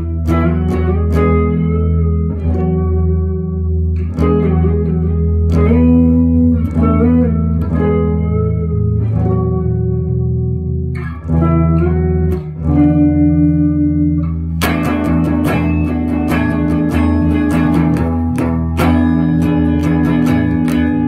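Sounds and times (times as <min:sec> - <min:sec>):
electric guitar chords ringing: 0:00.0 - 0:21.0.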